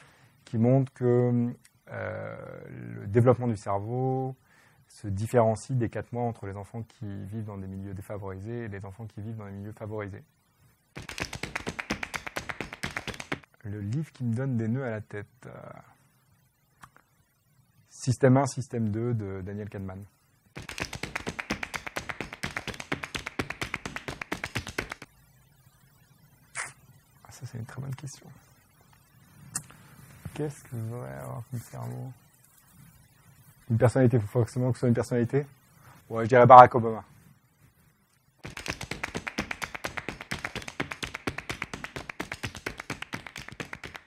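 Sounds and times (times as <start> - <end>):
fast light percussive taps: 11.0 - 13.5, 20.6 - 25.1, 38.4 - 44.0.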